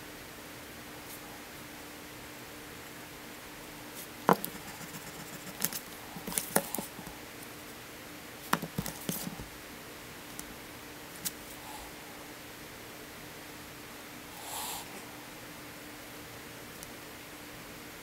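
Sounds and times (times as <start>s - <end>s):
ruler and pencil tapping: 4.3s - 5.7s
scraping on paper: 4.3s - 6.9s.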